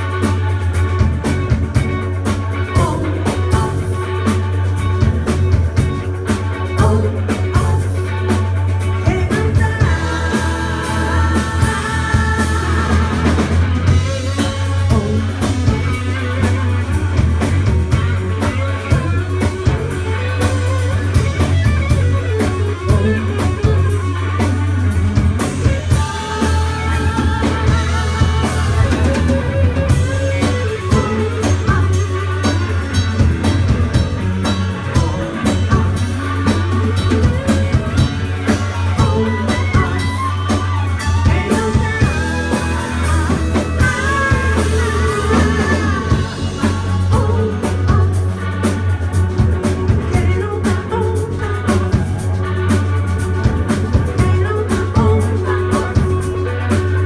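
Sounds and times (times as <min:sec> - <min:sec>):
bass guitar: 0:00.0 - 0:57.0
drum kit: 0:00.0 - 0:57.0
electric guitars: 0:00.0 - 0:57.0
vocals singing: 0:02.6 - 0:04.5, 0:06.6 - 0:16.6, 0:22.7 - 0:24.0, 0:25.6 - 0:48.8, 0:49.6 - 0:52.3, 0:54.0 - 0:57.0.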